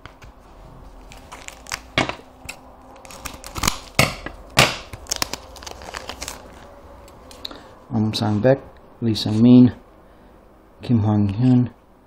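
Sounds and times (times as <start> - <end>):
foil wrapper crinkling and tearing: 0.9 - 7.4.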